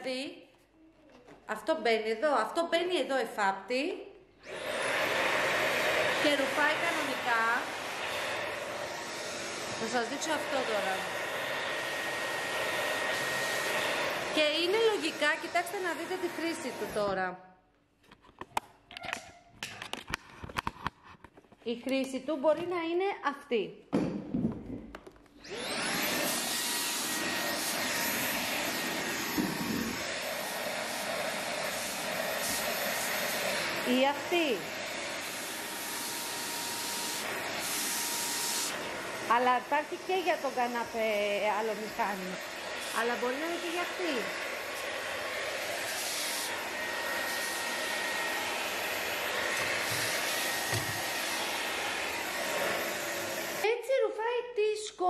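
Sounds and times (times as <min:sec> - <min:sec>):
handheld vacuum cleaner whine: 0:04.4 - 0:17.2, 0:25.4 - 0:53.7.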